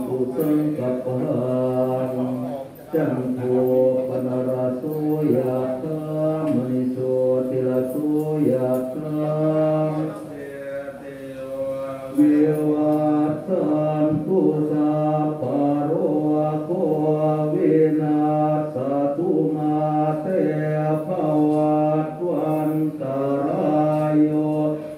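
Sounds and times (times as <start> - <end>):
monks chanting in unison: 0.0 - 24.9.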